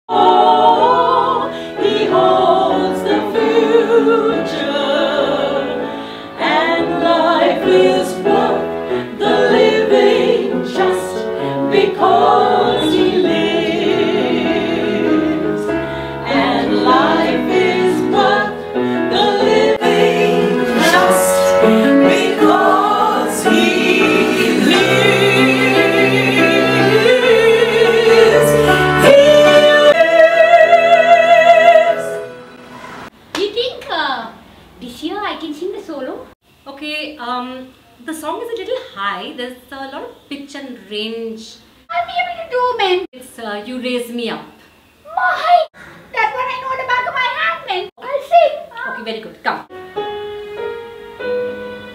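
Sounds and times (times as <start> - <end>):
women's choir singing operatically: 0.1 - 33.1.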